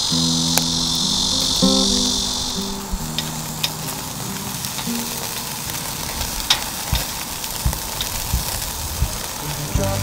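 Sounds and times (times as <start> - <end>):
fat popping: 0.0 - 10.0
meat sizzling over charcoal: 0.0 - 10.0.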